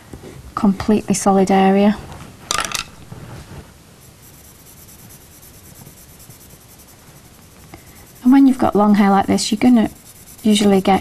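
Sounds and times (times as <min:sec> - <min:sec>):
pencil scratching on paper: 0:04.0 - 0:11.0.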